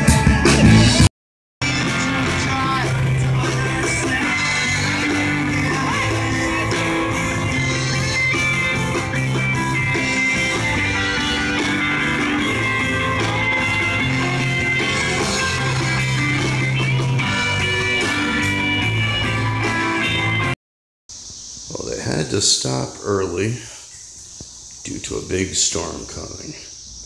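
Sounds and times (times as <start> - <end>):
electric guitar: 0.0 - 20.5
live rock band playing: 0.0 - 20.6.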